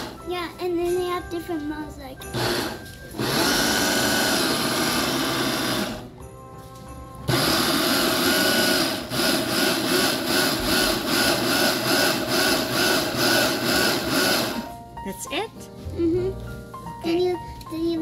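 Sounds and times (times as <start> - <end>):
electric food chopper motor running: 2.4 - 6.1, 7.3 - 14.7.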